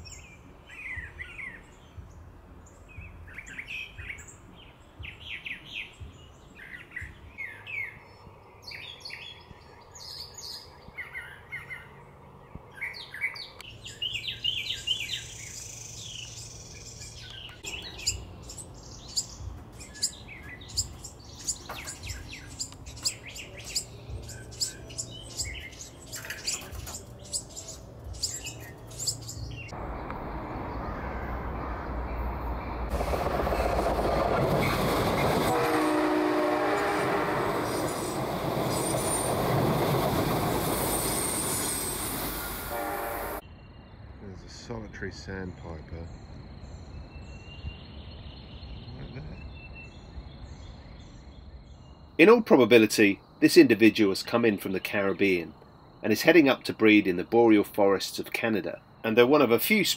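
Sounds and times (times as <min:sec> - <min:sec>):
bird singing varied phrases: 0:00.0 - 0:29.8, 0:43.4 - 0:59.9
young birds sharp calls: 0:17.4 - 0:29.7.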